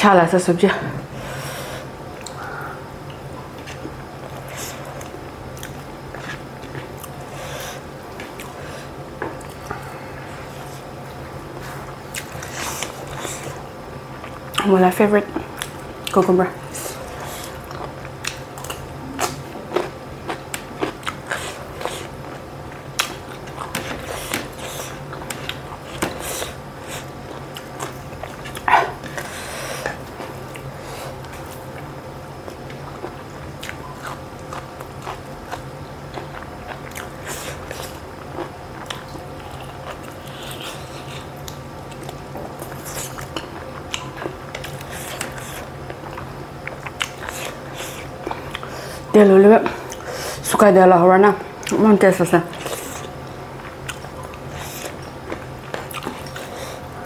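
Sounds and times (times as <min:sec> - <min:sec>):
faint steady hum: 0:00.0 - 0:57.0
person chewing food: 0:02.1 - 0:14.7, 0:15.4 - 0:48.8, 0:52.5 - 0:57.0.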